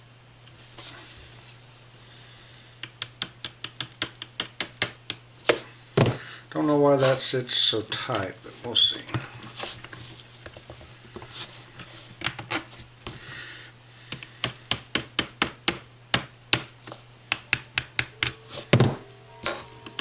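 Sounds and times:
small hammer tapping: 2.8s - 5.2s, 14.1s - 16.7s
rubbing and handling of parts: 8.6s - 13.2s.

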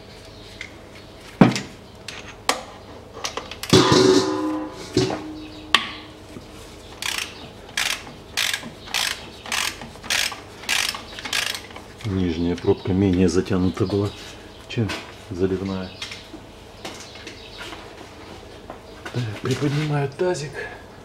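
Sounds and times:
metallic clatter: 3.7s - 6.2s
socket ratchet strokes: 7.0s - 11.7s.

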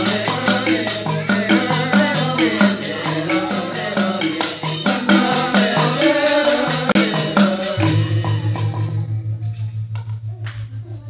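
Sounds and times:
men singing interlocking parts: 0.0s - 9.2s
rattling hand percussion: 0.0s - 11.0s
low pulsing hum: 7.8s - 11.0s.

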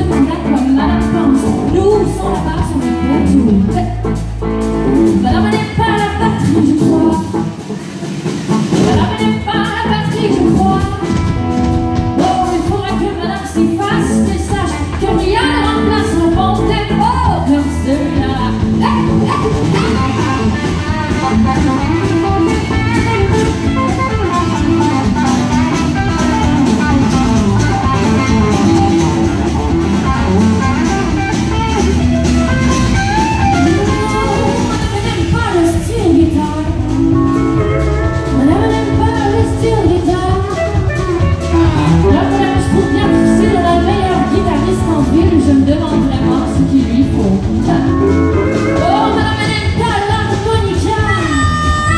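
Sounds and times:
woman singing: 0.0s - 4.2s, 5.1s - 7.4s, 8.8s - 11.2s, 12.1s - 20.5s, 33.6s - 41.0s, 41.6s - 51.9s
live country band playing: 0.0s - 51.9s.

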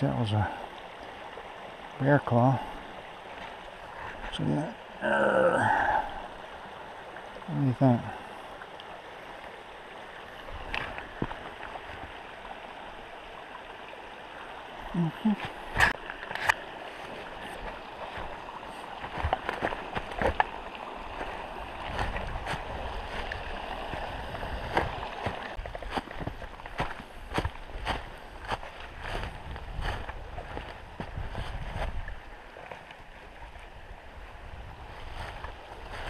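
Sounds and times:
creek rushing: 0.0s - 36.0s
footsteps in dry leaves: 17.0s - 32.0s.

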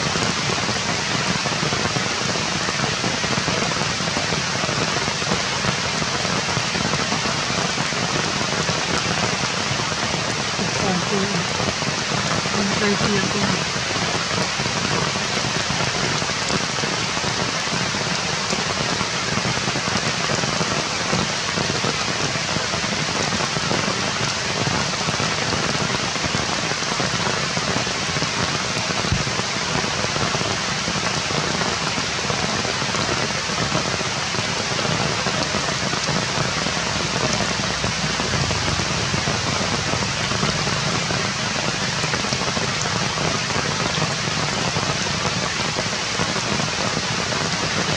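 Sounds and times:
rain falling on foliage: 0.0s - 47.9s.

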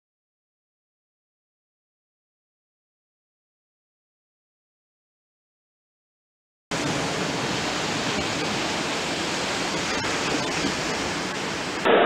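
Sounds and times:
surf at the seashore: 6.7s - 12.0s
wind: 6.7s - 12.0s.

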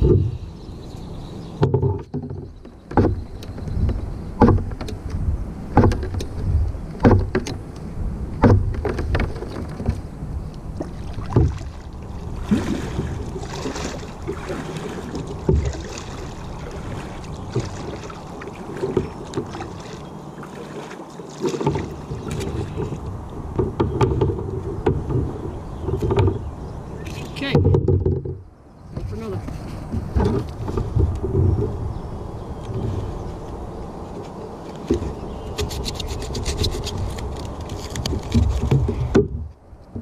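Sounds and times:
water splashing against boat: 0.0s - 40.0s
knocks on boat hull: 1.6s - 5.0s, 5.7s - 6.3s, 7.0s - 7.6s, 8.4s - 10.0s, 11.2s - 11.7s, 15.0s - 15.9s, 21.5s - 26.5s, 27.4s - 29.1s, 38.3s - 40.0s.

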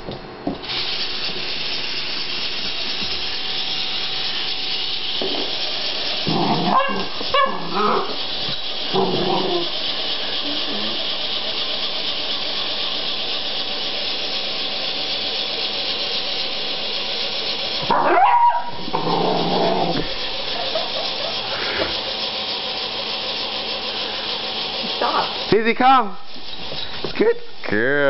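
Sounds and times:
dog vocalizing: 6.3s - 8.2s, 8.9s - 9.7s.

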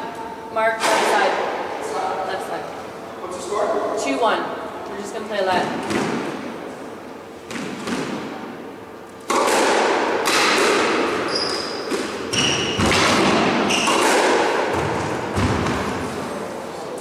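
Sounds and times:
squash ball struck by racquets: 0.8s - 1.6s, 5.5s - 6.5s, 7.4s - 16.3s
shoes squealing on wooden floor: 11.2s - 12.8s, 13.6s - 14.0s.

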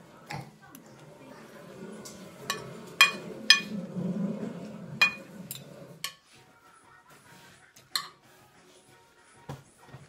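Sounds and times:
cutlery clinking on a plate: 2.5s - 3.7s, 5.0s - 6.2s, 7.9s - 8.3s.

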